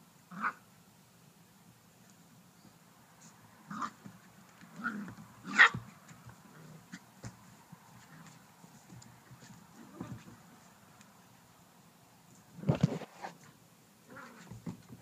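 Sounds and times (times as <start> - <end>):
puppies barking: 4.8 - 5.9.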